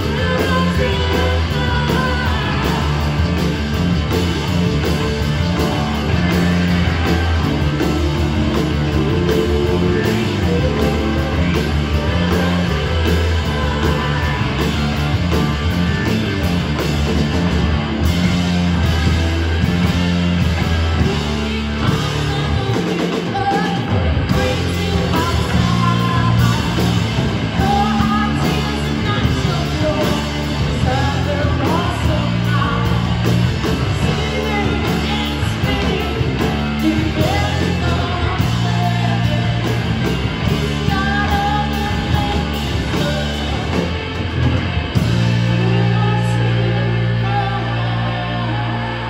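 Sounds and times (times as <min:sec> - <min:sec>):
woman singing lead: 0:00.0 - 0:18.2, 0:18.8 - 0:49.0
rock band playing live: 0:00.0 - 0:49.0.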